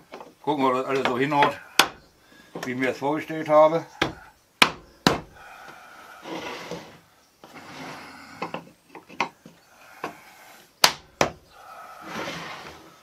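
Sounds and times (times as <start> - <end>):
wood sliding and rubbing: 5.5 - 10.7, 11.6 - 13.0.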